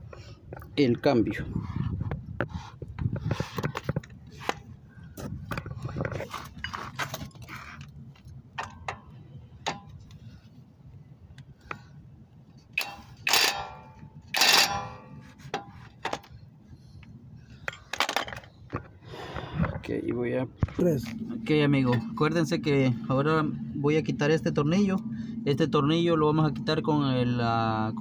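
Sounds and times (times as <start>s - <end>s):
cordless impact wrench hammering: 12.8s - 16.3s.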